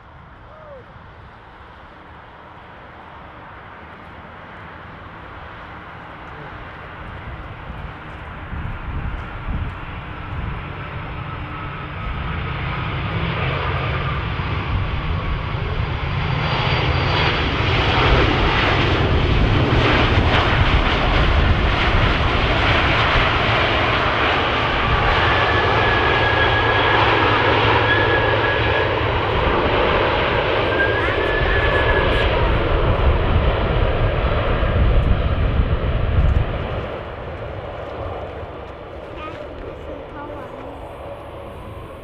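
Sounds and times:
jet engine roar: 0:00.0 - 0:42.0
steady whine: 0:24.1 - 0:42.0.

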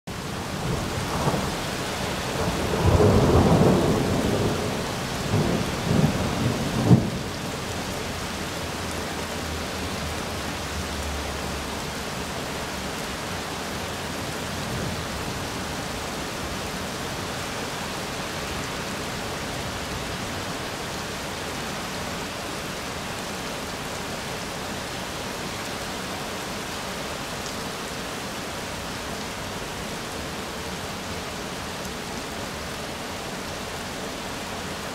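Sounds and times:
steady rain hiss: 0:00.1 - 0:34.9
thunder rumbling: 0:00.6 - 0:07.5.

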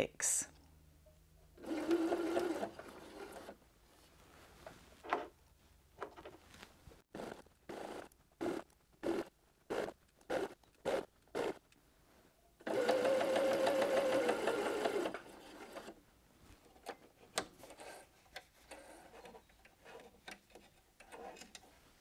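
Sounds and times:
sewing machine stitching: 0:01.6 - 0:03.6, 0:07.1 - 0:11.6, 0:12.6 - 0:16.0.

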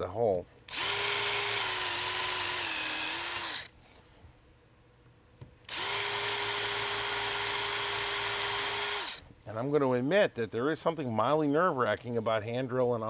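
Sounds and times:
cordless drill motor whine: 0:00.7 - 0:03.7, 0:05.7 - 0:09.2
drill click: 0:00.7 - 0:03.7, 0:05.7 - 0:09.2.

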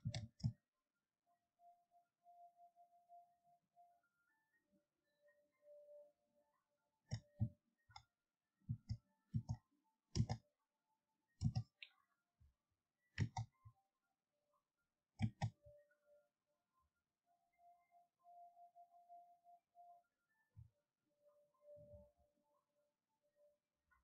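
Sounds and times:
computer mouse clicking: 0:00.0 - 0:00.6, 0:07.1 - 0:08.1, 0:08.7 - 0:10.4, 0:11.4 - 0:11.9, 0:13.2 - 0:13.6, 0:15.2 - 0:15.6.

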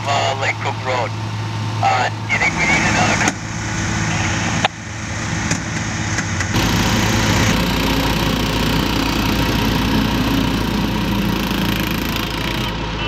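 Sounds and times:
small petrol engine running: 0:04.9 - 0:13.0.

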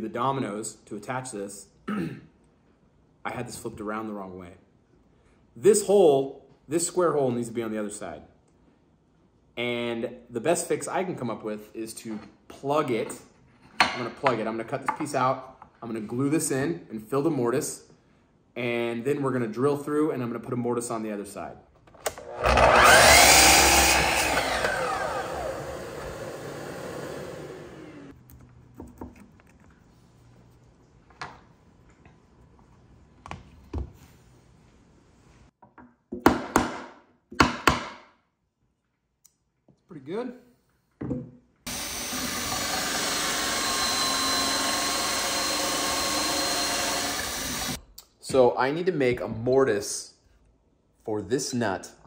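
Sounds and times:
cordless drill boring into wood: 0:22.2 - 0:28.0, 0:41.7 - 0:47.8
miter saw cutting wood: 0:22.2 - 0:28.1, 0:41.7 - 0:47.8.

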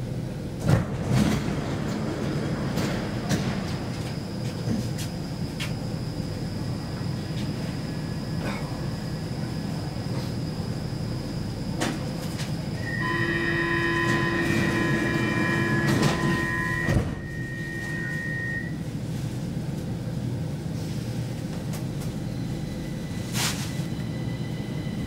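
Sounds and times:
train rumble: 0:00.0 - 0:25.0
sliding doors shutting: 0:00.6 - 0:05.0, 0:11.8 - 0:18.6
electronic door warning tone: 0:12.8 - 0:18.8.

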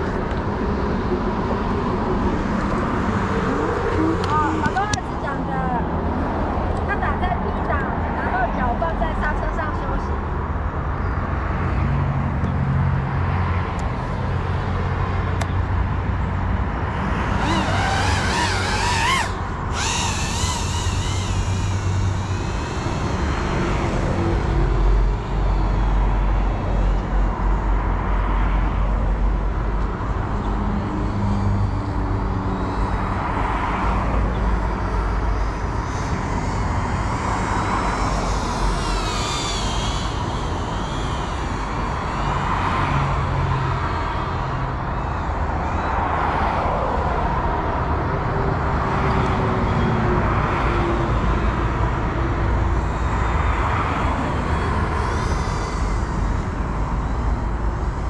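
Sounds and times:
drone motors and propellers whining: 0:00.0 - 0:58.0.

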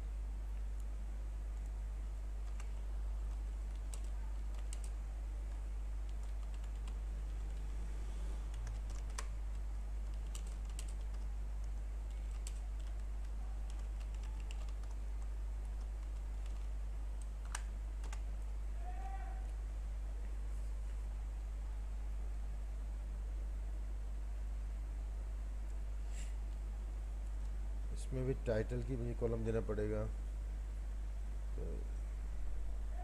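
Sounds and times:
steady low hum: 0:00.0 - 0:33.0
computer keyboard typing: 0:02.4 - 0:07.8, 0:08.5 - 0:18.3.

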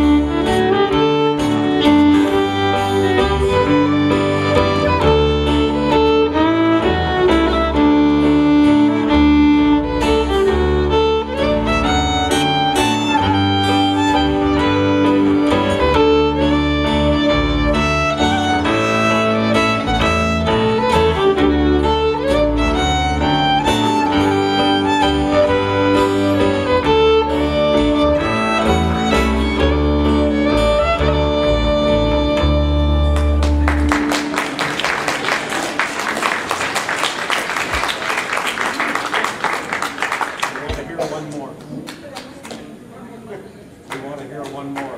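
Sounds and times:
fiddle and guitar waltz: 0:00.0 - 0:34.3
audience applause: 0:33.1 - 0:42.7.

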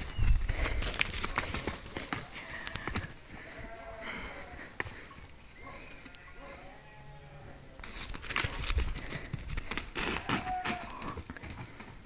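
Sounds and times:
loud rustling and crackling: 0:00.0 - 0:03.6, 0:07.8 - 0:11.9
calf bleating: 0:02.4 - 0:04.7, 0:05.6 - 0:07.7, 0:10.2 - 0:11.1.

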